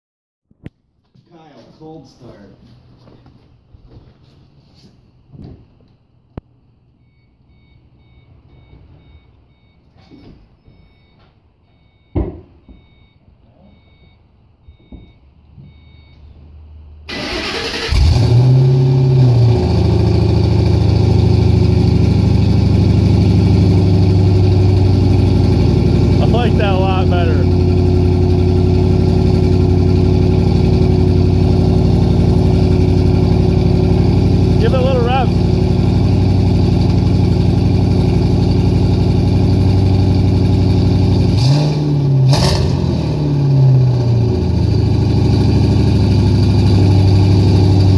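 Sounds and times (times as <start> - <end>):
car warning chime beeping: 7.0 - 16.4
car engine idling: 17.1 - 41.6, 43.4 - 47.9.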